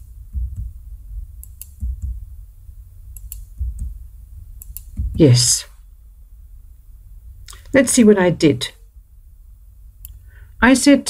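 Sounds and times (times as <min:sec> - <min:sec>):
keyboard and mouse clicks: 0:01.4 - 0:02.2, 0:03.2 - 0:03.9, 0:04.6 - 0:05.0.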